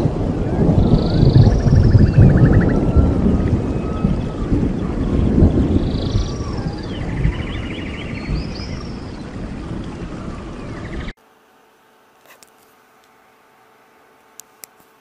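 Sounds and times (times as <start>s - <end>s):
deep rumble: 0.0s - 11.2s
whale-like gliding calls: 0.5s - 11.1s.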